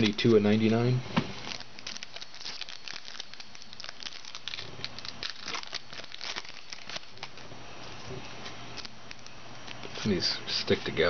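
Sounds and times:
plastic wrapper crinkling: 0.0 - 0.7, 1.4 - 7.5, 8.7 - 10.0.

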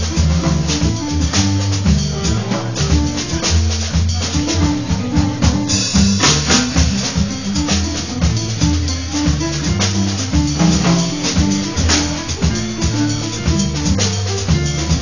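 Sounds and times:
double bass: 0.0 - 15.0
drum kit with cymbals: 0.0 - 15.0
piano: 0.0 - 15.0.

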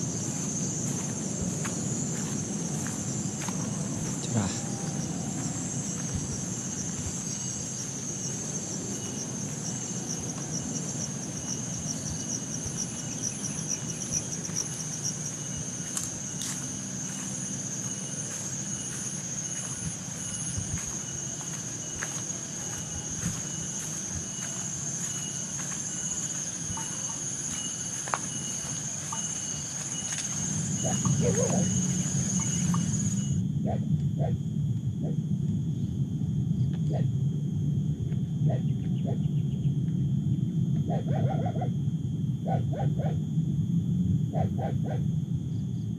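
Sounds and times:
fainter higher insect chirps: 0.0 - 33.4
insects trilling: 0.0 - 45.9.

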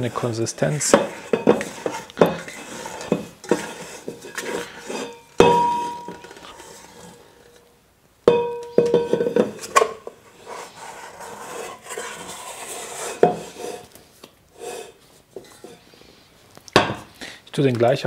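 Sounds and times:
dough scraping in bowl: 0.0 - 7.6, 9.4 - 16.0
metal bowl knocking and clanking: 0.8 - 6.4, 8.3 - 10.2.

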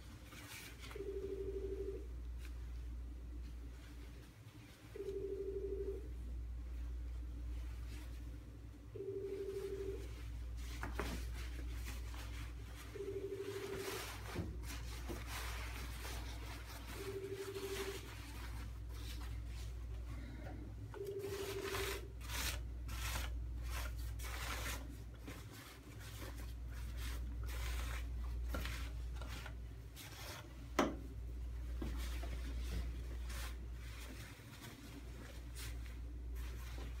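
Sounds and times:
fabric rustling: 9.3 - 20.1, 31.5 - 37.0
lint roller rubbing on cloth: 10.6 - 19.8, 21.1 - 30.5.

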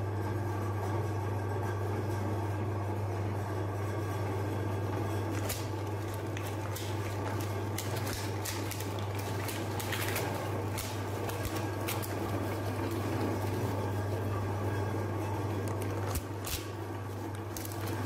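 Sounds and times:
meat grinder motor humming: 3.6 - 18.0
ice cream cones crunching: 5.2 - 13.8, 15.7 - 18.0.

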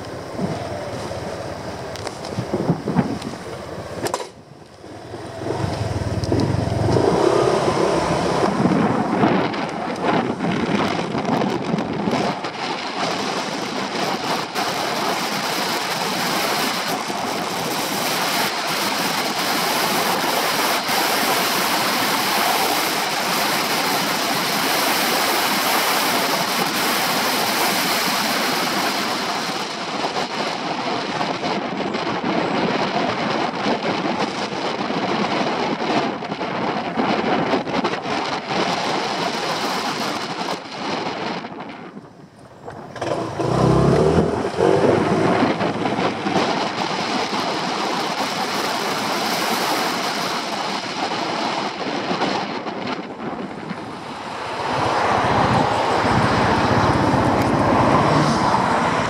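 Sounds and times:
wind noise on microphone: 0.0 - 59.0
scooter engine pulling away: 4.8 - 9.6, 42.2 - 47.6.

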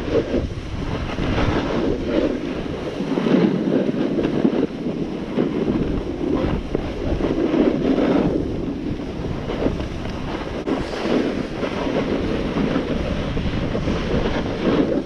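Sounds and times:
skis sliding on snow: 0.0 - 15.0
wind buffeting microphone: 0.0 - 15.0.

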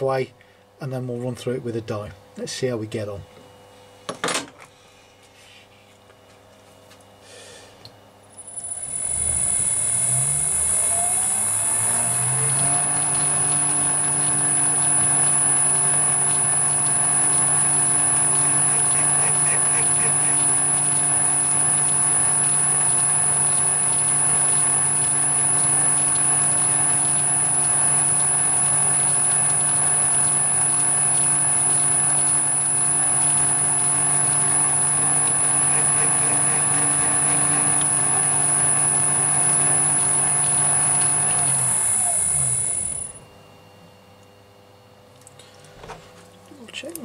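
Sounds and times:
motor winding down: 8.3 - 43.3
metal lathe whining: 8.4 - 43.2.

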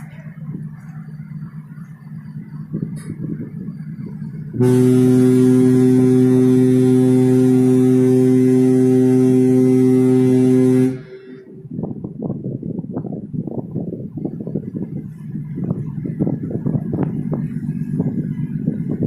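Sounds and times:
low rumble: 0.0 - 19.0
ship's horn blast: 4.5 - 11.9.

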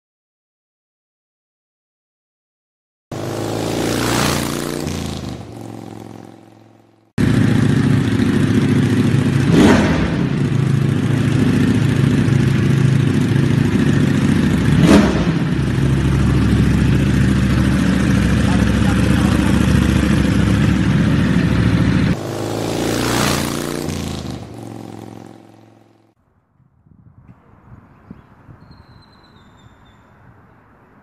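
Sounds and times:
engine throttle blips: 3.1 - 26.2
motorcycle engine idling: 5.2 - 23.0.

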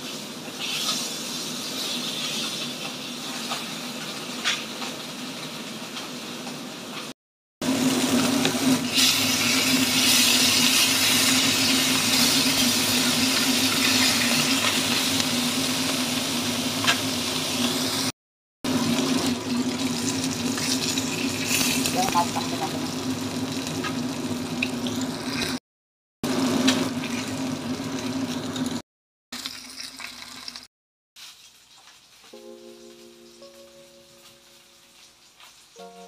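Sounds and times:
fish sizzling in hot oil: 0.0 - 6.8, 7.7 - 18.1, 18.7 - 25.6, 29.4 - 32.4, 34.3 - 35.8.

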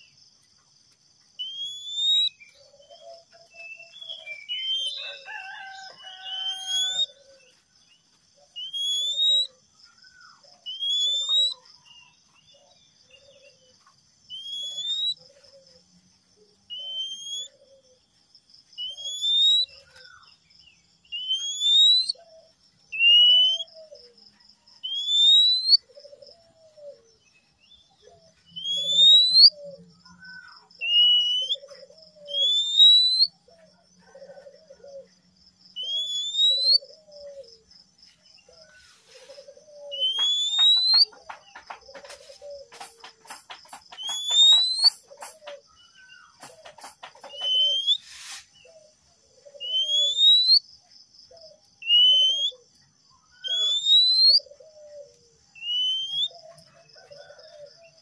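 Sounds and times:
bird singing whistles: 1.4 - 2.5, 3.1 - 5.0, 6.2 - 7.1, 8.5 - 9.6, 10.6 - 11.6, 14.3 - 15.2, 16.7 - 17.5, 18.8 - 20.2, 21.1 - 22.2, 22.9 - 23.8, 24.8 - 25.8, 28.5 - 33.4, 35.8 - 37.2, 39.9 - 41.2, 43.9 - 45.0, 47.2 - 48.4, 49.6 - 50.7, 51.8 - 52.6, 53.4 - 54.5, 55.5 - 56.4.

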